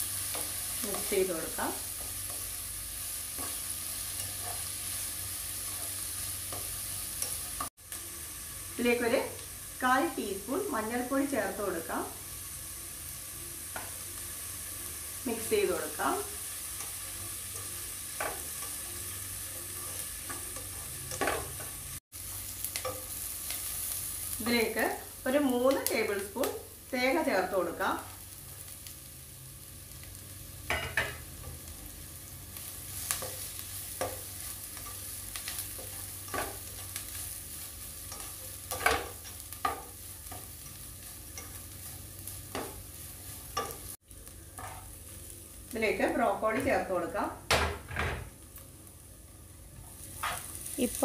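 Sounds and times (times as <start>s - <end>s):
vegetables sizzling in oil: 0.0s - 51.0s
spatula scraping a pan: 32.9s - 45.0s.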